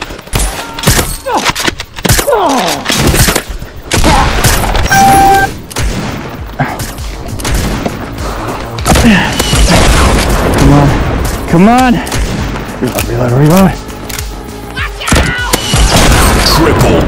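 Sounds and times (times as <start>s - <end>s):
steady beep: 4.9s - 5.5s.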